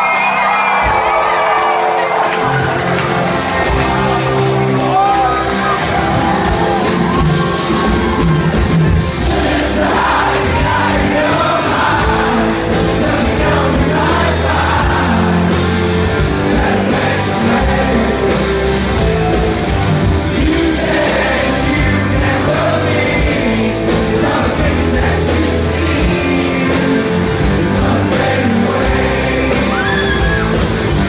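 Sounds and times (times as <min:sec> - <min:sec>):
electric guitars: 0:00.0 - 0:31.0
live rock band playing: 0:00.0 - 0:31.0
man singing: 0:09.0 - 0:15.8, 0:20.3 - 0:30.6.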